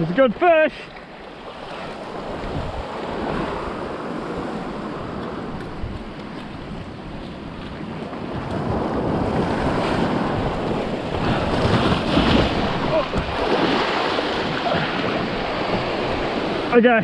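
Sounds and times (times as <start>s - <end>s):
wind buffeting microphone: 1.9s - 17.0s
sea surge washing over rocks: 7.8s - 16.8s.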